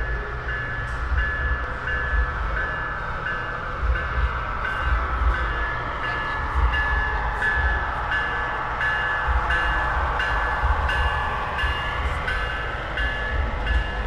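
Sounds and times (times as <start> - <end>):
model railroad bell ringing: 0.0 - 14.0
model train rumbling past: 0.0 - 14.0.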